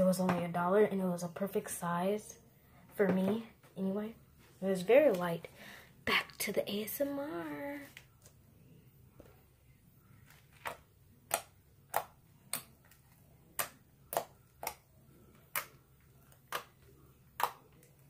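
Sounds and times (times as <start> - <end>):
slime popping and clicking: 16.4 - 17.9.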